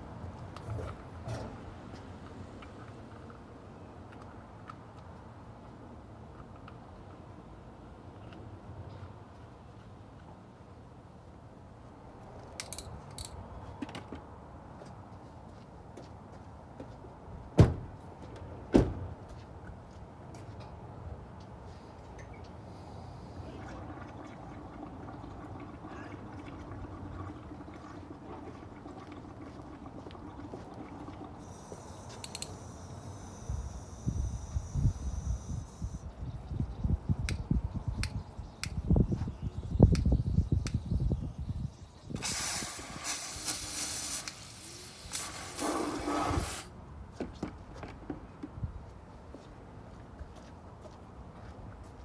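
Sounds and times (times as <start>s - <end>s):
water filling plastic bucket: 23.7s - 31.4s
water spray hissing into bucket: 42.1s - 46.7s.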